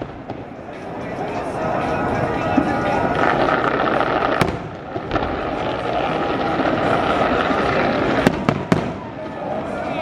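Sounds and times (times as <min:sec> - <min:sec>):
fireworks crackling and rumbling: 0:00.0 - 0:10.0
sharp firework bang: 0:02.6 - 0:05.7, 0:08.0 - 0:09.1.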